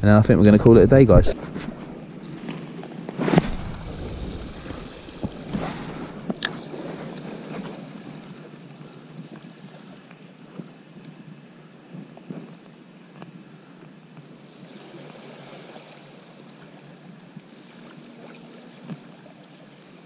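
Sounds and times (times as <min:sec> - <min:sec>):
sea water lapping rocks: 0:01.4 - 0:11.0, 0:14.5 - 0:20.0
rush of air on microphone: 0:03.2 - 0:08.4.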